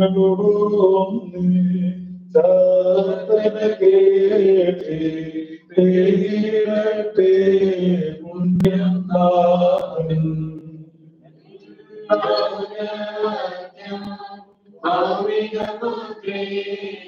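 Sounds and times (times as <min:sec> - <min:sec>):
man chanting a prayer: 0:00.0 - 0:10.6.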